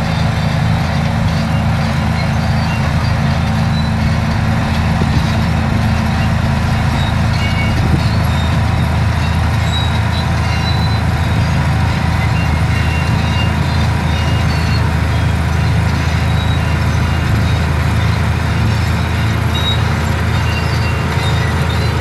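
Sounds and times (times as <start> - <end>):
bulldozer diesel engine droning: 0.0 - 22.0.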